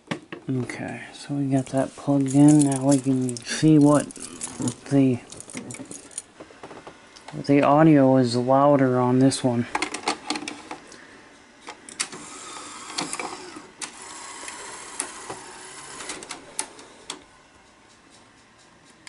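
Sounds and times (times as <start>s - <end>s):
loading mechanism whirring: 1.6s - 7.4s, 11.6s - 17.3s
sharp mechanical clicks: 11.6s - 17.2s.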